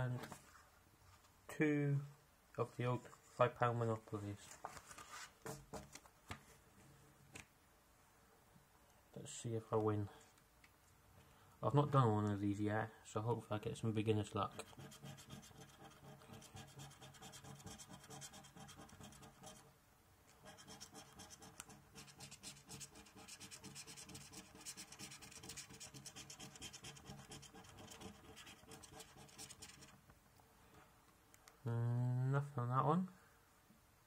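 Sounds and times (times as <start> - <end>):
scratchcard scraping: 14.5 - 19.6, 20.4 - 30.0.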